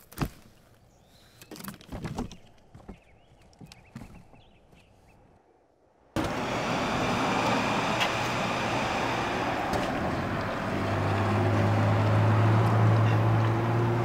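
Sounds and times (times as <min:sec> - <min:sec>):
low engine hum: 0:06.2 - 0:14.0
traffic noise: 0:06.2 - 0:14.0.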